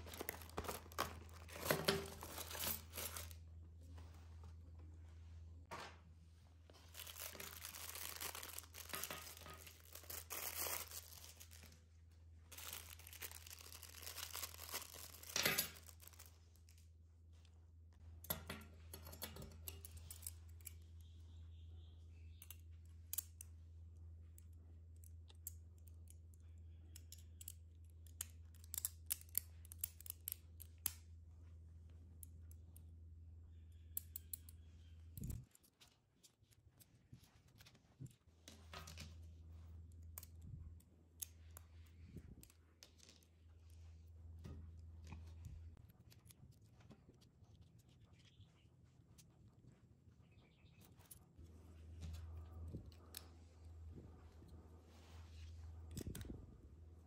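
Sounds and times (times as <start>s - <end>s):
plastic packets crinkling and tearing: 0.0s - 3.4s, 6.8s - 11.8s, 12.5s - 16.8s
steady low hum: 0.0s - 57.0s
small parts clicking and tapping: 18.2s - 21.3s, 24.3s - 31.1s, 33.7s - 36.9s.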